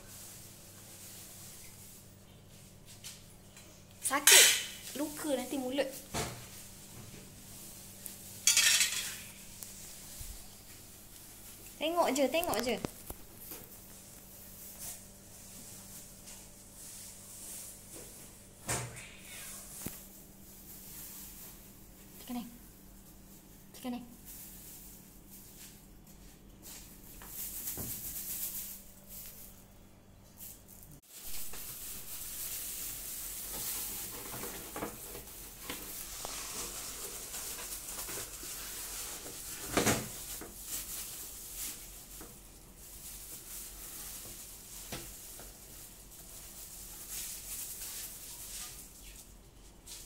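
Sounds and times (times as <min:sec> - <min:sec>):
plastic wrapping crinkling: 0:04.1 - 0:18.4, 0:26.6 - 0:29.6, 0:30.3 - 0:49.3.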